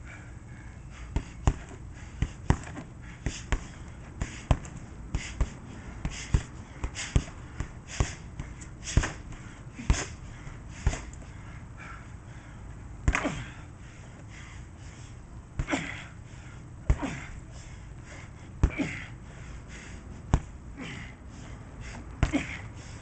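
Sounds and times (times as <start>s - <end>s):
punches thudding on heavy bag: 1.0s - 10.2s, 10.8s - 11.2s, 13.0s - 13.6s, 15.6s - 16.1s, 16.8s - 17.4s, 18.6s - 19.1s, 20.3s - 21.1s, 22.2s - 22.7s.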